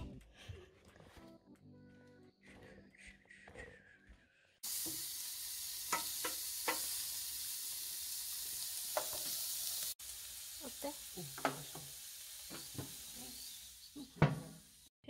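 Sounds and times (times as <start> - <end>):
steaks sizzling on grill: 4.6 - 14.9.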